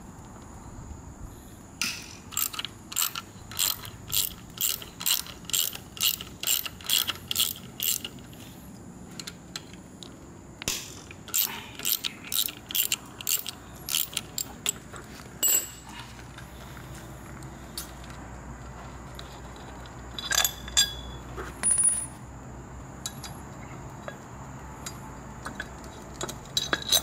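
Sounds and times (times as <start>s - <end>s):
ratchet tool clicking: 1.8s - 8.4s, 10.7s - 14.8s.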